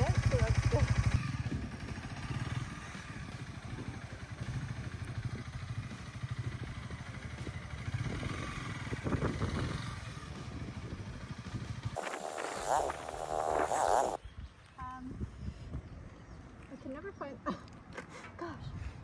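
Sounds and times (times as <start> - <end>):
motorcycle engine at low speed: 0.0 - 14.2.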